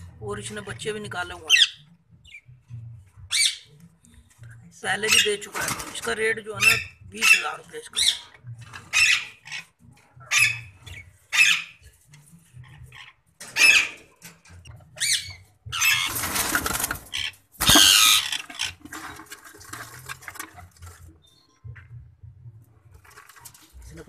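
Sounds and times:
parakeets squawking: 0:01.5 - 0:02.5, 0:03.3 - 0:03.8, 0:04.9 - 0:05.5, 0:06.6 - 0:11.8, 0:12.6 - 0:18.8.

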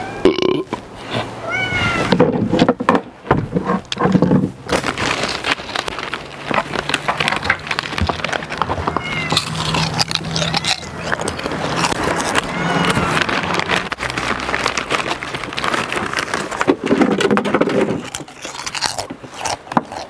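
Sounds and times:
cat meowing: 0:00.0 - 0:00.3, 0:01.4 - 0:02.4, 0:08.8 - 0:13.7
clicks and rustling: 0:02.1 - 0:20.0.

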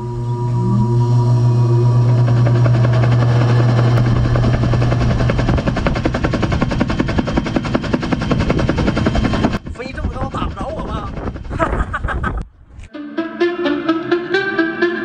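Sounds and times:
helicopter engine hum: 0:00.0 - 0:12.2
rotor blades chopping: 0:01.6 - 0:11.8.

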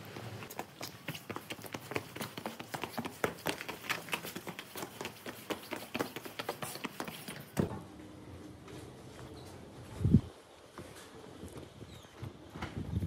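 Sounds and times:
footsteps on cobblestones: 0:00.0 - 0:07.8.

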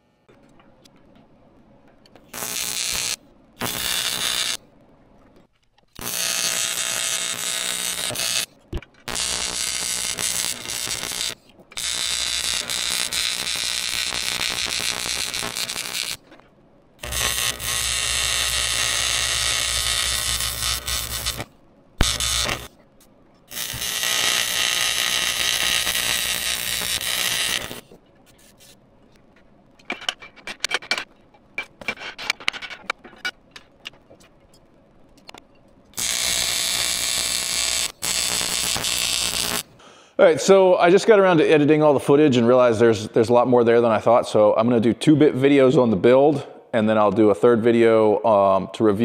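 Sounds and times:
welding arc buzzing hiss: 0:02.2 - 0:04.6, 0:05.9 - 0:16.4, 0:17.0 - 0:22.8, 0:23.4 - 0:28.8, 0:35.9 - 0:39.8.

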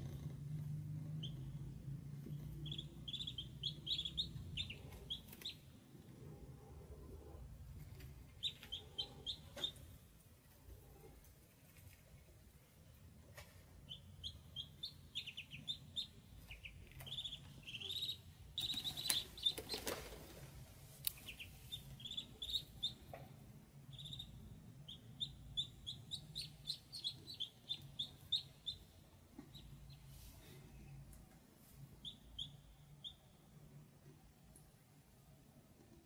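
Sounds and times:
ducklings peeping: 0:01.1 - 0:06.2, 0:07.8 - 0:10.0, 0:13.7 - 0:20.2, 0:21.0 - 0:30.1, 0:31.9 - 0:33.4.

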